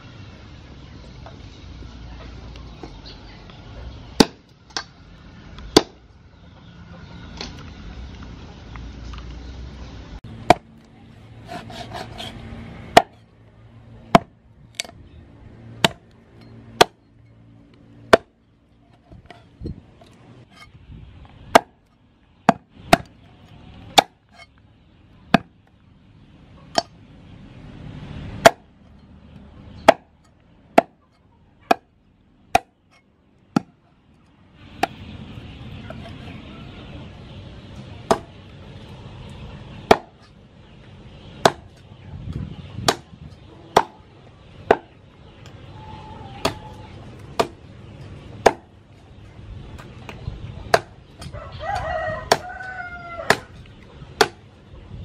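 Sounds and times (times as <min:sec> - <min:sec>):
meat cleaver chopping on wooden block: 0:11.5 - 0:13.2.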